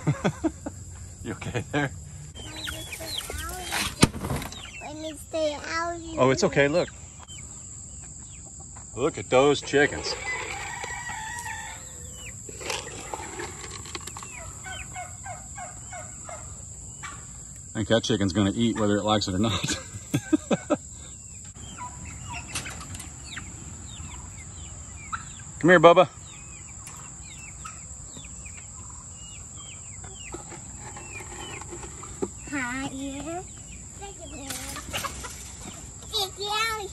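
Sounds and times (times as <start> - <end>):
chickens clucking: 0.0 - 36.9
rooster crowing: 10.2 - 12.2.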